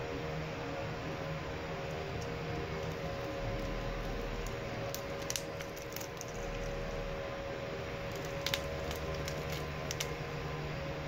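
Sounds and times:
steady background hum: 0.0 - 11.0
fried chicken skin crackling: 1.8 - 10.6.

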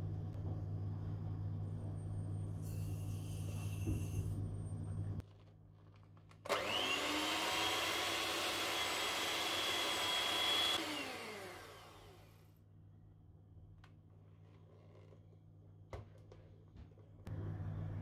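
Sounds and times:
kitchen appliance motor whining: 6.5 - 12.5.

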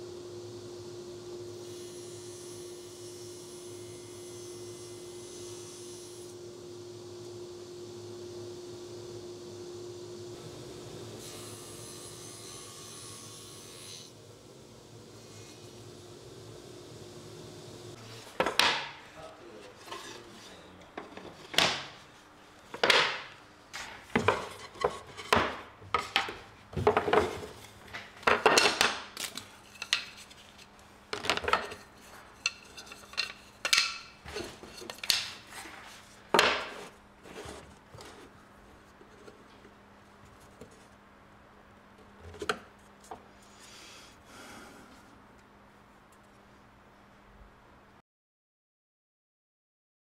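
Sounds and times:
wooden boards knocking and clattering: 18.4 - 19.0, 21.0 - 22.0, 22.7 - 29.1, 36.3 - 36.8.

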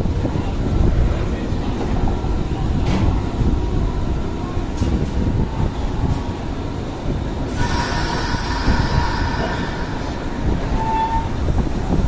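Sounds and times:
train low rumble: 0.0 - 12.0
hiss: 7.5 - 10.4
brief high squeal: 7.6 - 11.4.

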